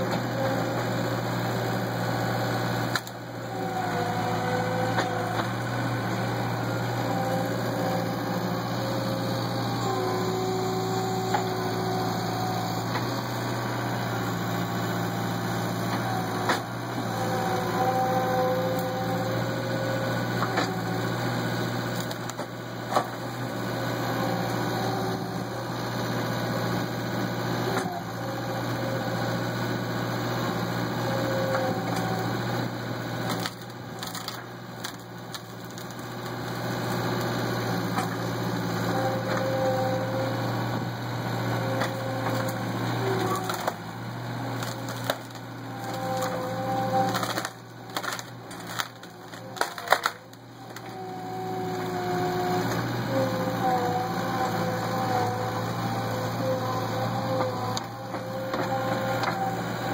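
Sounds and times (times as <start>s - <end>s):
hydraulic whines: 0.0s - 59.9s
loader engine running: 0.0s - 59.9s
branches cracking and snapping: 21.8s - 23.2s, 33.2s - 38.3s, 41.7s - 43.8s, 44.4s - 51.0s.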